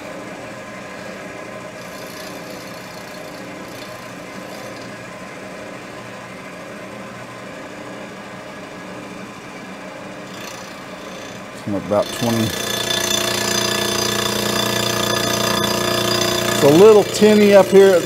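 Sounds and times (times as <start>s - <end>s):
milling machine cutting metal: 1.8s - 5.0s, 10.3s - 18.0s.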